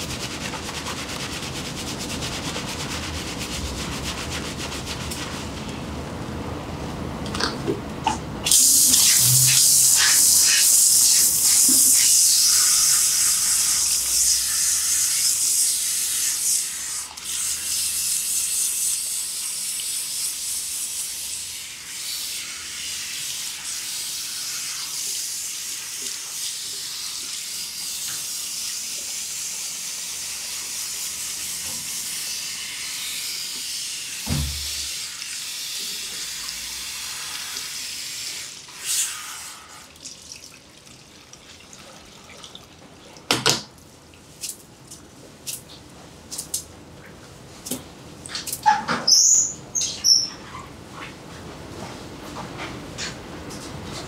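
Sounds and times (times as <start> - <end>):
hand shower spraying water: 0.0 - 5.6, 8.4 - 39.9
water running and splashing: 34.2 - 43.3
short thump: 34.3 - 34.9.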